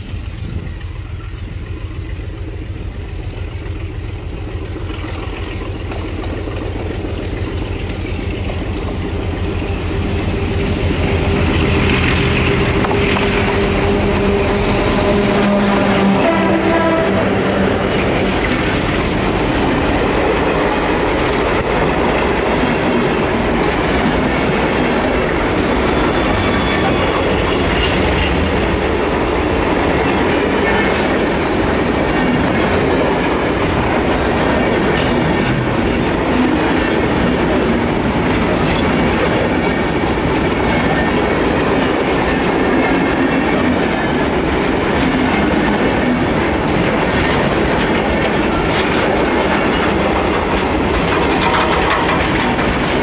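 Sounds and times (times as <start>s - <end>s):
train wheels clattering over rail joints: 0.0s - 53.0s
faint wheel squeal: 26.0s - 28.3s.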